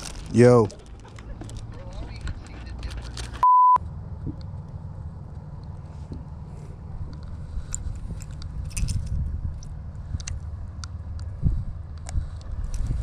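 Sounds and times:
fishing line clicks and rustles: 0.0 - 3.4, 4.4 - 13.0
wind rumbling on microphone: 5.8 - 13.0.

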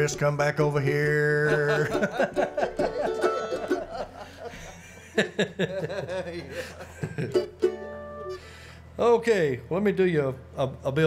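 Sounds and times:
banjo notes: 1.4 - 3.9, 7.3 - 8.5
mandolin notes: 1.5 - 4.2, 7.2 - 8.6
person chuckling: 1.5 - 7.6.

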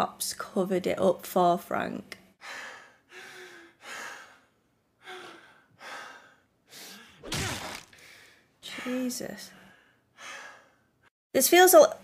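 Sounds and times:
person gasping and breathing hard: 2.4 - 9.0.

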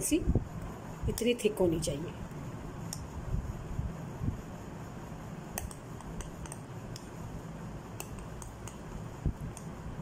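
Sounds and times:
spoon clicking against bowl: 5.6 - 7.1.

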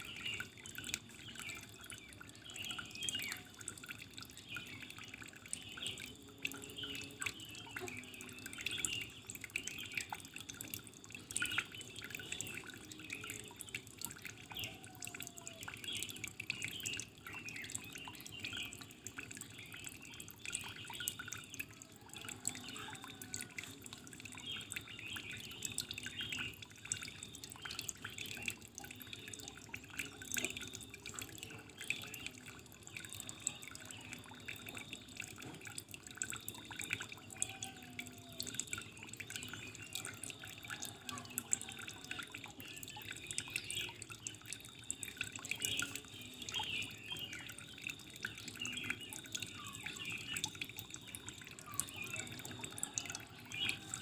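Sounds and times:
water dripping and splashing: 0.0 - 54.0.

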